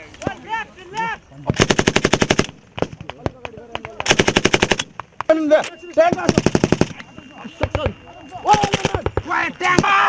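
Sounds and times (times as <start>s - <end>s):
machine gun firing bursts: 1.6s - 2.6s, 4.0s - 4.9s, 6.2s - 7.0s
people shouting: 7.4s - 10.0s.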